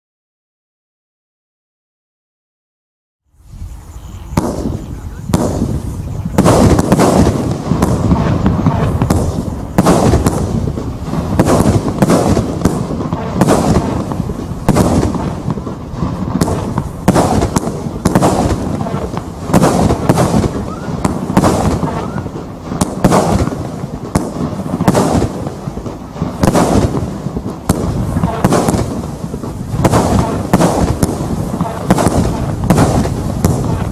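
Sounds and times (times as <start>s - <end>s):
fireworks firing sharp reports: 3.7s - 33.9s.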